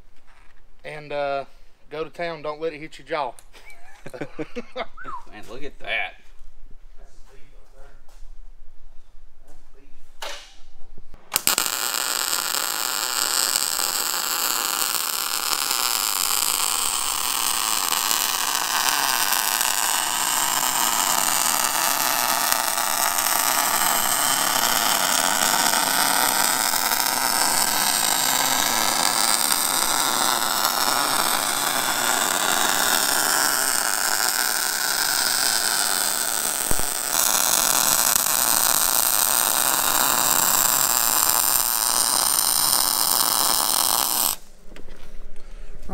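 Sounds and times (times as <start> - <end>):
welding arc sizzling: 11.2 - 44.6.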